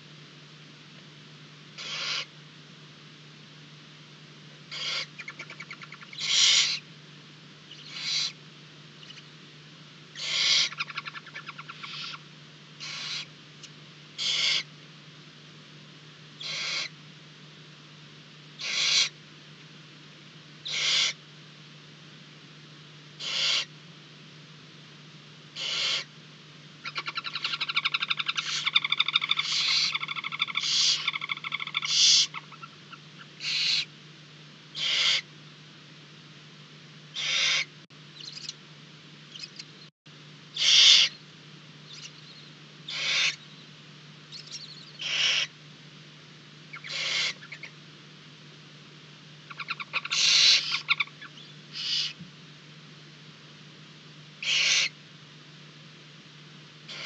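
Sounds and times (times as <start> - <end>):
low electrical hum: 0.0 - 57.0
owl hissing call: 1.8 - 2.3, 4.7 - 6.9, 7.7 - 8.4, 10.1 - 12.2, 12.8 - 13.3, 14.2 - 14.7, 16.4 - 17.0, 18.6 - 19.2, 20.6 - 21.2, 23.2 - 23.7, 25.6 - 26.1, 26.8 - 32.8, 33.4 - 33.9, 34.8 - 35.3, 37.1 - 38.6, 40.5 - 41.2, 41.9 - 43.6, 44.3 - 45.6, 46.7 - 47.7, 49.5 - 52.2, 54.4 - 55.0
owl twittering chatter: 1.8 - 2.3, 4.7 - 6.9, 7.7 - 8.4, 9.0 - 9.3, 10.1 - 12.2, 12.8 - 13.3, 14.2 - 14.7, 16.4 - 17.0, 18.6 - 19.2, 20.6 - 21.2, 23.2 - 23.7, 25.6 - 26.1, 26.8 - 33.9, 34.8 - 35.3, 37.1 - 38.6, 39.3 - 39.7, 40.6 - 41.2, 41.9 - 43.7, 44.3 - 45.6, 46.7 - 47.8, 49.5 - 52.2, 54.4 - 55.0.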